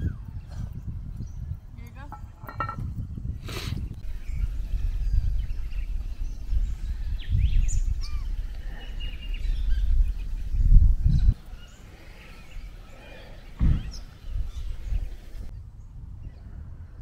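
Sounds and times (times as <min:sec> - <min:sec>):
wind buffeting microphone: 0:00.0 - 0:17.0
birds chirping and whistling: 0:03.2 - 0:15.5.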